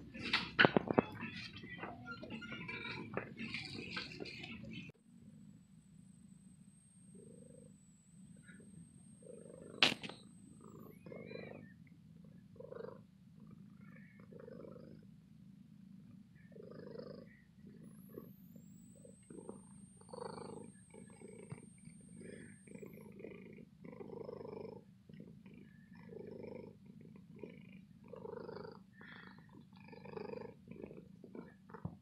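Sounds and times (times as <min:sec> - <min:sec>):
cat purring: 0:00.0 - 0:32.0
sharp click: 0:09.8 - 0:10.2.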